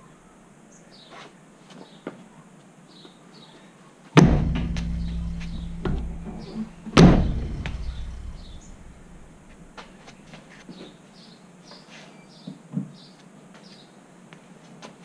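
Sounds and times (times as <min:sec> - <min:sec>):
kicks against car wheel: 0:04.2 - 0:09.4.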